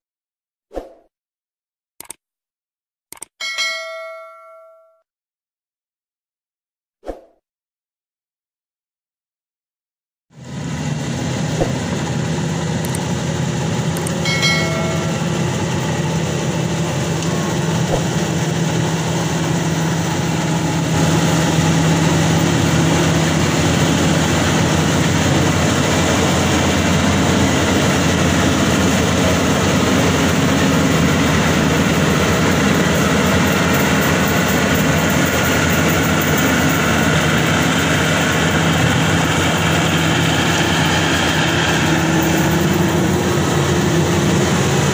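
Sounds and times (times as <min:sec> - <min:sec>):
combine harvester engine hum: 0:10.4 - 0:44.9
cutting and threshing machinery: 0:10.4 - 0:44.9.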